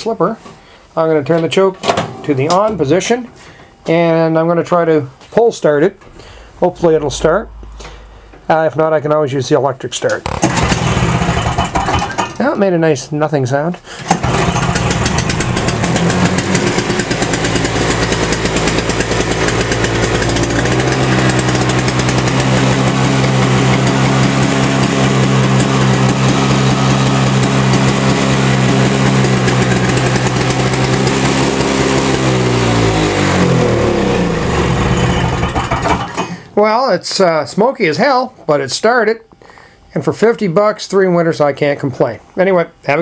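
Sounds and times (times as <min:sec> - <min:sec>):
snowblower engine starting and running: 0:10.2 - 0:12.4, 0:13.9 - 0:36.5.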